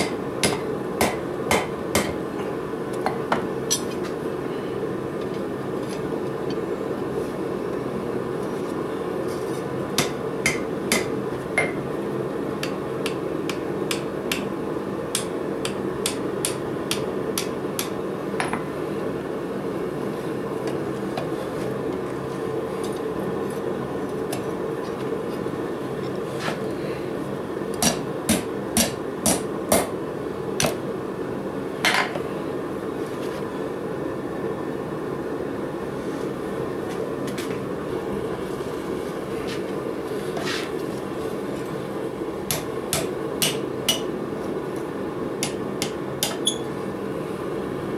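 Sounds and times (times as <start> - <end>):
steady low hum: 0.0 - 47.9
hammer striking steel on anvil: 10.0 - 11.8, 42.5 - 44.1.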